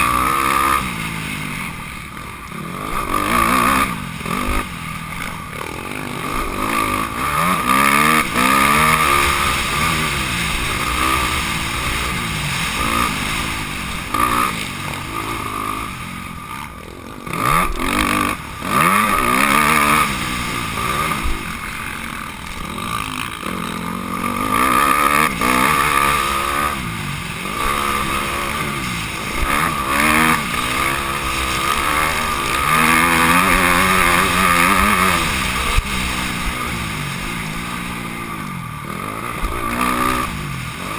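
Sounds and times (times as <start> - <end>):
motocross bike engine revving: 0.0 - 40.9.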